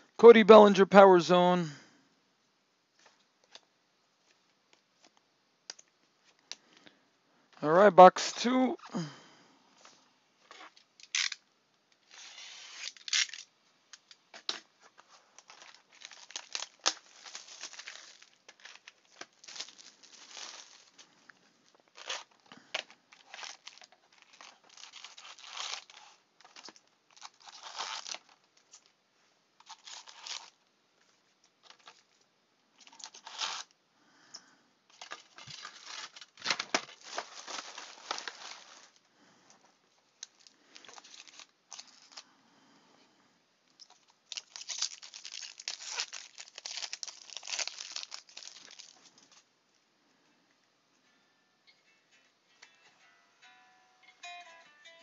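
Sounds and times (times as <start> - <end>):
wrappers tearing and crinkling: 10.5 - 11.4, 12.0 - 29.0, 29.6 - 30.6, 31.6 - 32.2, 32.8 - 33.8, 34.9 - 39.0, 40.1 - 42.2, 43.8 - 49.5.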